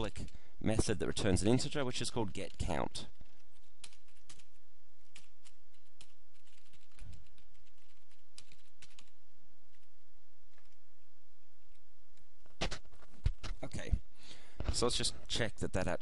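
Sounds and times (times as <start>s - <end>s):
steady low hum: 0.0s - 16.0s
keyboard typing: 2.3s - 9.9s.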